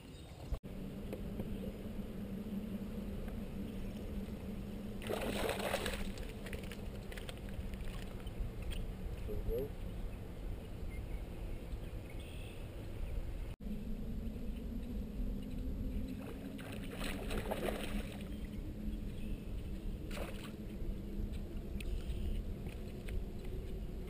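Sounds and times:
wind: 0:00.0 - 0:24.0
fish splashing: 0:05.0 - 0:08.2.

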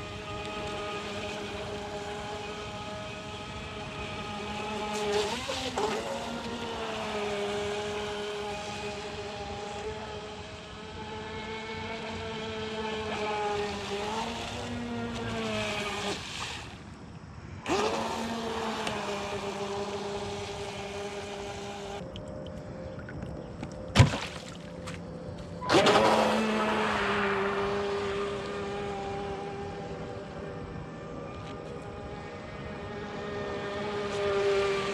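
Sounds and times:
electric motor whining: 0:00.0 - 0:16.4, 0:17.6 - 0:22.9, 0:25.2 - 0:34.9.

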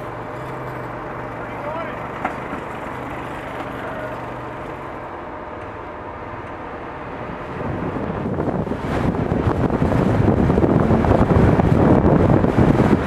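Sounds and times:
train engine rumble: 0:00.0 - 0:13.0
wind buffeting: 0:06.3 - 0:13.0.

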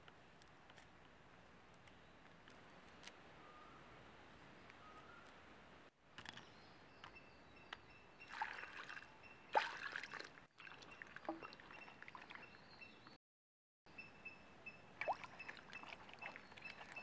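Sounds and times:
water pouring and splashing: 0:08.3 - 0:12.4, 0:15.0 - 0:17.0.

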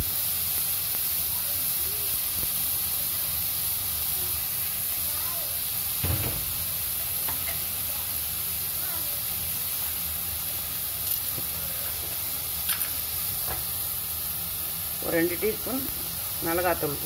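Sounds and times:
onions sizzling in oil: 0:00.0 - 0:17.0.

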